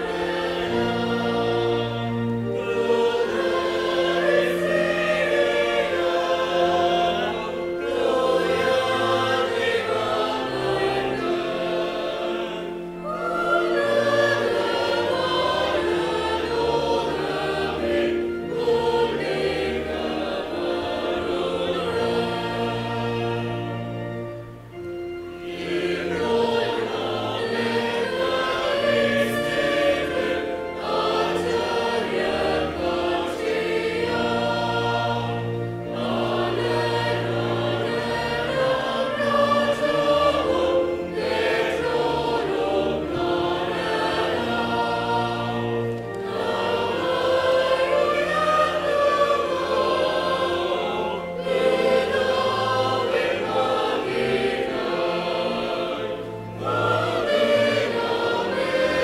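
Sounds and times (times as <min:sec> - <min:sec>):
choir singing a hymn: 0:00.0 - 0:59.0
low held accompaniment notes: 0:00.0 - 0:59.0.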